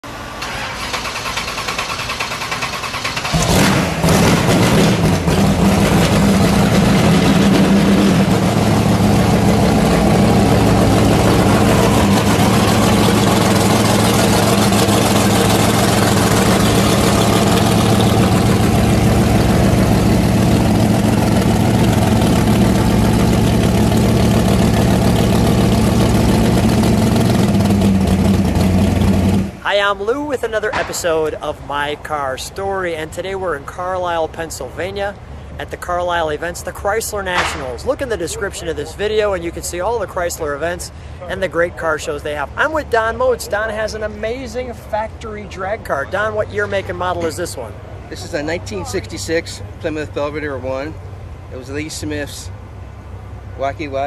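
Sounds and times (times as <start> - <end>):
starter motor cranking: 0.4 - 5.5
engine revving and idling: 0.4 - 29.6.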